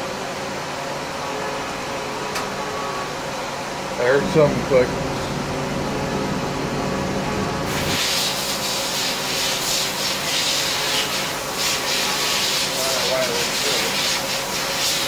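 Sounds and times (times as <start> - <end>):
low machine hum: 0.0 - 8.0
loud steady hiss: 7.7 - 15.0.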